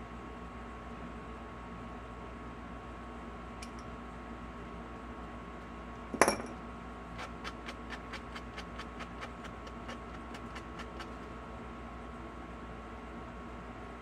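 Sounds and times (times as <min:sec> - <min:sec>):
knife set down on table: 0:06.2 - 0:06.6
sanding block rubbing: 0:07.2 - 0:11.3.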